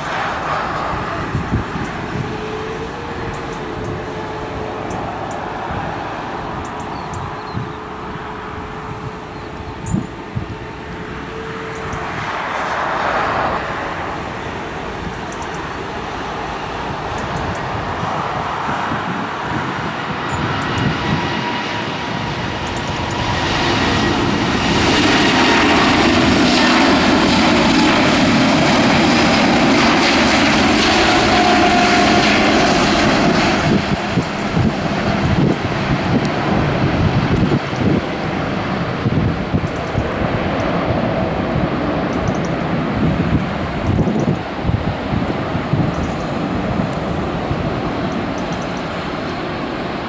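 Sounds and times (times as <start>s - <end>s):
jet engines roaring: 0.0s - 50.0s.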